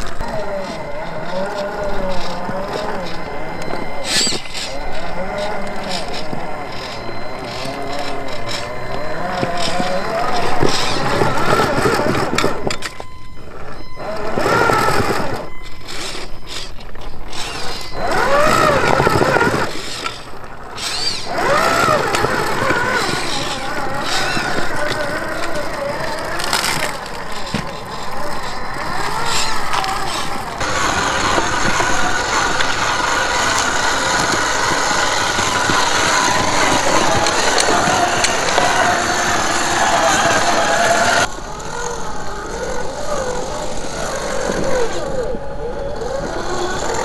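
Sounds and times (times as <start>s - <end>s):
tyre clicks and scrapes: 0.0s - 41.3s
electric motor whining: 0.0s - 47.0s.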